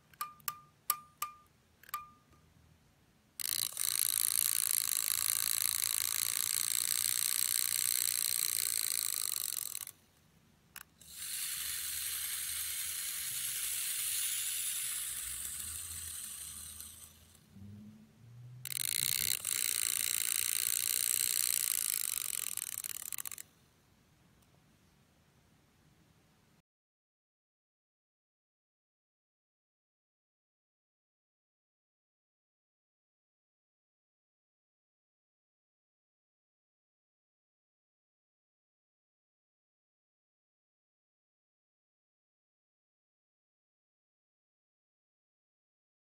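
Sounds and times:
clockwork mechanism whirring: 3.4 - 9.9, 10.8 - 17.5, 18.6 - 23.4.

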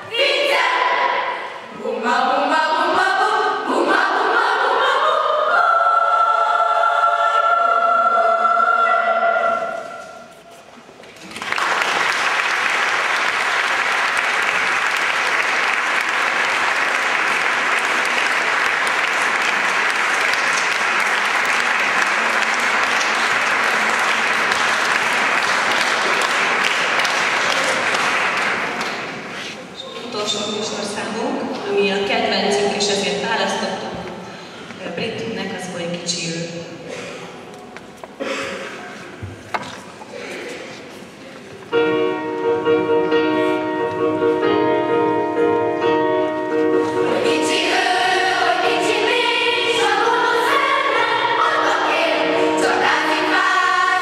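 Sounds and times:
children's choir singing: 0.0 - 10.5, 12.0 - 29.8, 46.4 - 54.0
audience applause: 11.2 - 29.3.

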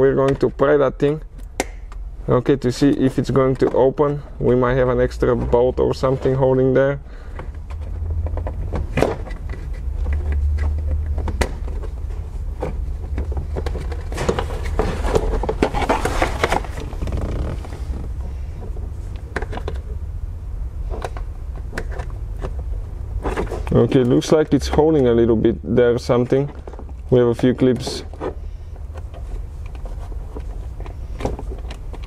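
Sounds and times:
steady low rumble: 1.2 - 32.0
scraping and rustling: 5.1 - 19.9, 20.8 - 24.8, 26.0 - 32.0.

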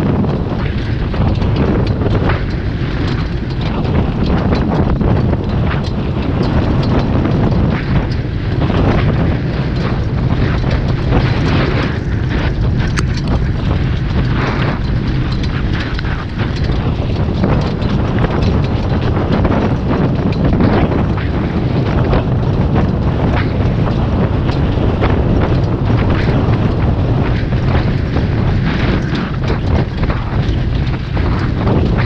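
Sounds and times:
cart rolling on dirt track: 0.0 - 32.0
wheel and hoof clicks: 0.0 - 32.0
wind buffeting microphone: 0.0 - 32.0.

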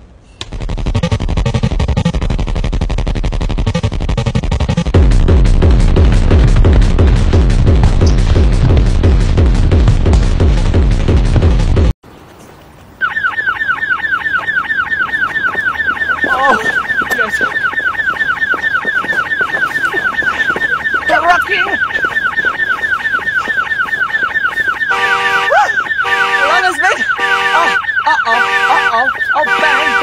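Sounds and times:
pounding electronic dance music: 0.6 - 11.9, 15.4 - 27.8, 28.4 - 30.0
car alarm chirping: 13.0 - 30.0.

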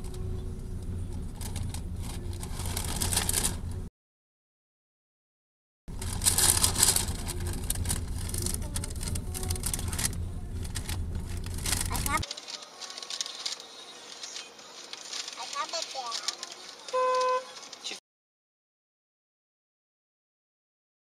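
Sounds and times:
car engine and road rumble: 0.0 - 3.9, 5.9 - 12.3.

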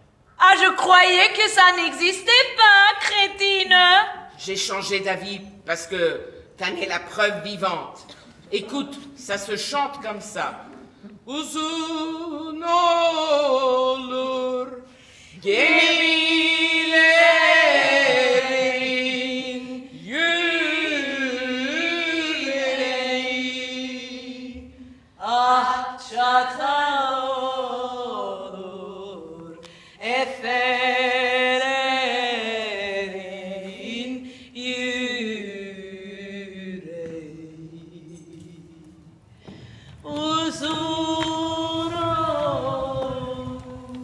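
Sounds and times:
woman singing unaccompanied: 0.4 - 4.3, 11.3 - 24.5, 40.0 - 44.0.

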